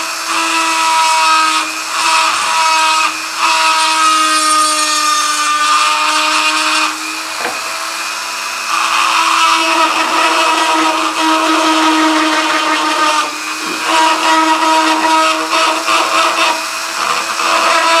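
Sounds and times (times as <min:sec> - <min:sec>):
rotary tool whining: 0:04.8 - 0:18.0
bit grinding metal: 0:08.8 - 0:18.0.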